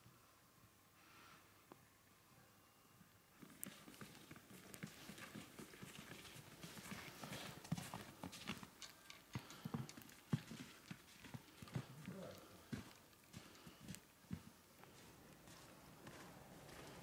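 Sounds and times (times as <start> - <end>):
footsteps on wooden boardwalk: 3.5 - 8.8, 9.4 - 17.0.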